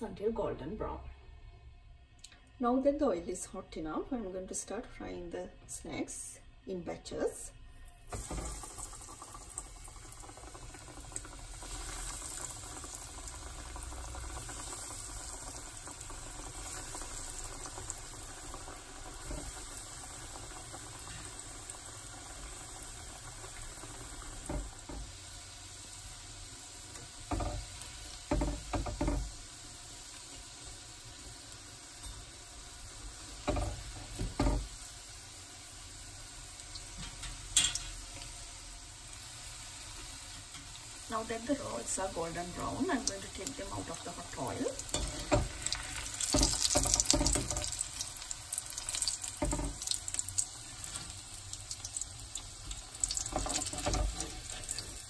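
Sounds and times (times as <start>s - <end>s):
hot oil bubbling and sizzling: 7.8s - 55.0s.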